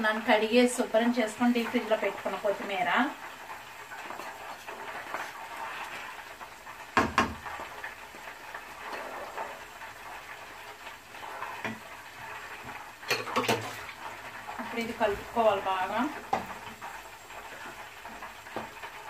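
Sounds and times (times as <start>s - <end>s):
wooden spatula scraping a plate: 4.1s - 6.3s, 8.8s - 9.7s.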